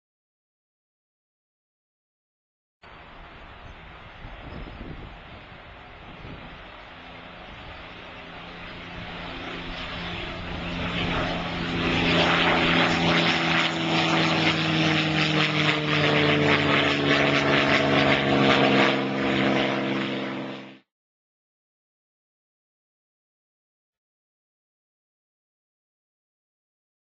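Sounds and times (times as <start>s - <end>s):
propeller plane flying past: 2.8s - 20.9s.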